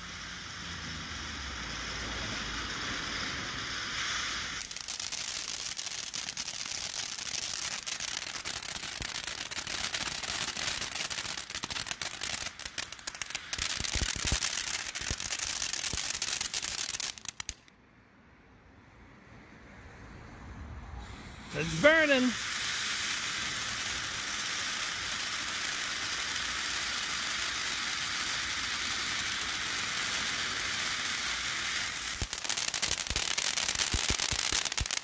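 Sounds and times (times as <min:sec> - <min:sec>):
firework fountain hissing: 0:00.0 - 0:17.7, 0:19.7 - 0:35.0
firework crackling: 0:00.0 - 0:17.8, 0:20.1 - 0:35.0.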